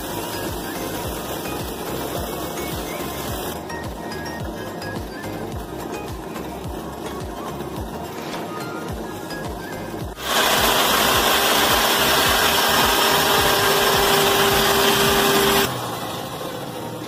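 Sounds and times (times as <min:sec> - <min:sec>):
table saw cutting wood: 0:08.0 - 0:15.9.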